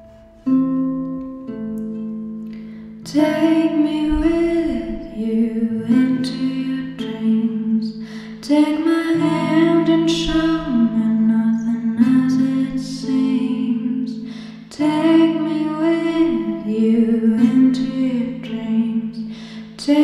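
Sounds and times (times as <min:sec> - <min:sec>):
held chords: 0:00.0 - 0:20.0
woman singing: 0:03.0 - 0:20.0.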